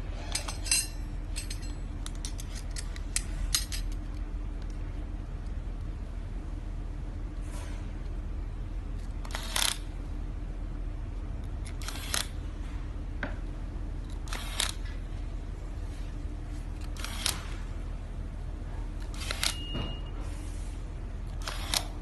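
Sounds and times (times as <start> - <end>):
steady low hum: 0.0 - 22.0
power screwdriver whirring: 14.3 - 14.8, 17.0 - 17.4, 21.4 - 21.9.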